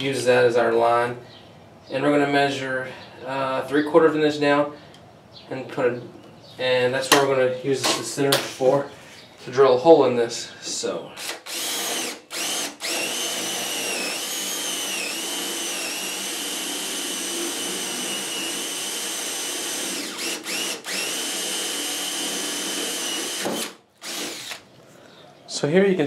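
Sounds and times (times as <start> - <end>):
cordless drill boring into wood: 11.2 - 24.7.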